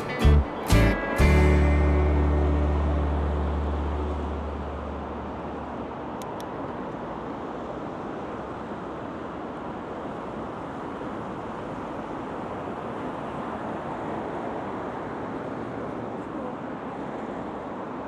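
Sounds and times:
low note of background music: 0.0 - 5.6
street traffic: 0.0 - 18.0
wind: 0.0 - 18.0.

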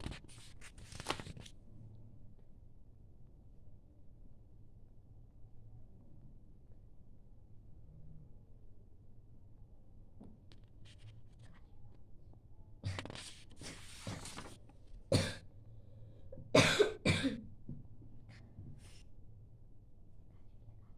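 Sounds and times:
person coughing: 15.1 - 15.4, 16.5 - 17.4.

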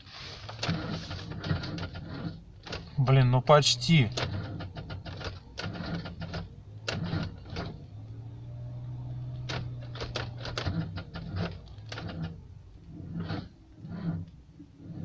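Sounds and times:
car starter cranking engine: 0.3 - 15.0.

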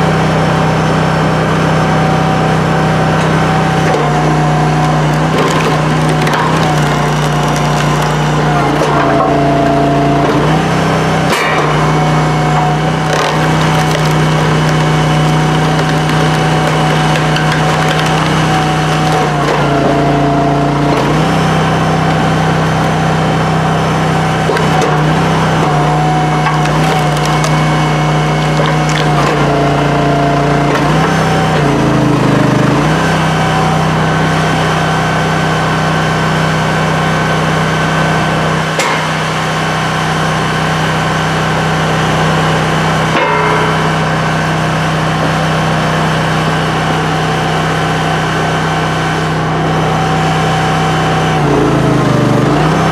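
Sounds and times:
log splitter engine running: 0.0 - 52.9
wood cracking: 4.0 - 9.7, 12.5 - 23.3, 24.4 - 30.2
split wood clattering onto pile: 4.8 - 9.3, 12.6 - 20.2, 25.6 - 29.6.

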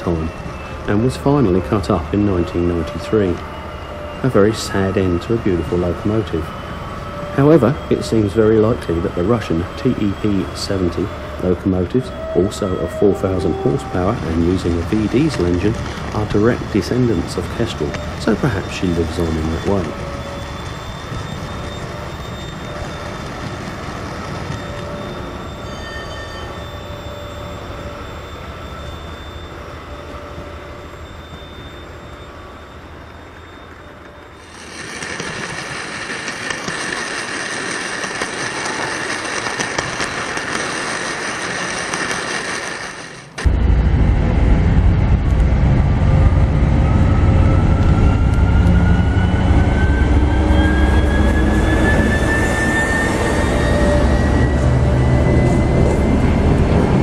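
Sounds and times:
deep engine note with whine: 0.0 - 57.0
low engine rumble: 26.7 - 57.0
hissing rush: 31.8 - 45.1.

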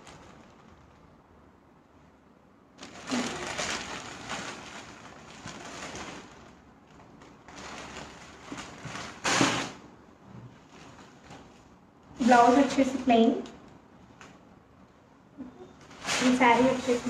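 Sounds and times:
fabric rustling: 0.0 - 1.4, 2.7 - 12.8, 15.7 - 17.0.

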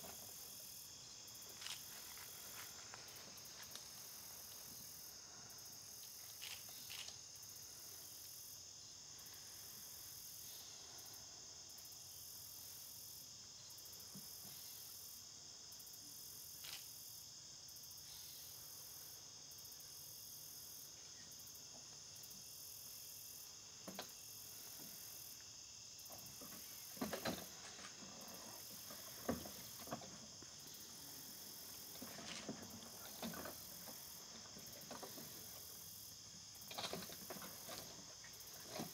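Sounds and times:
insects trilling: 0.0 - 38.9
soft knocks and rustles: 26.1 - 30.6.

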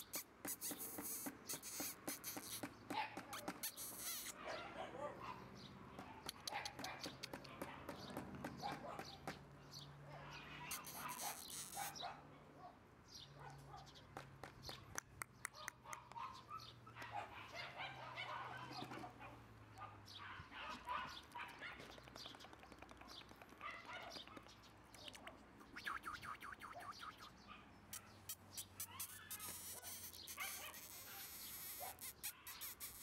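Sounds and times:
puppy whimpering and yipping: 0.0 - 4.9, 10.4 - 12.2, 28.0 - 33.0.

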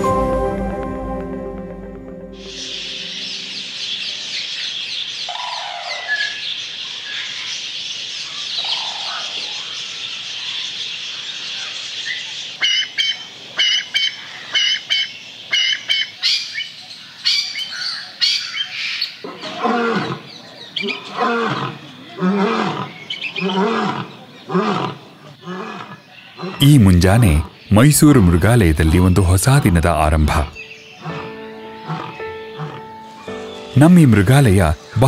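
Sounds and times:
low bird calls: 2.4 - 33.8
birds chirping: 2.4 - 35.0
bird's loud sharp calls: 2.6 - 26.6, 30.6 - 33.8.

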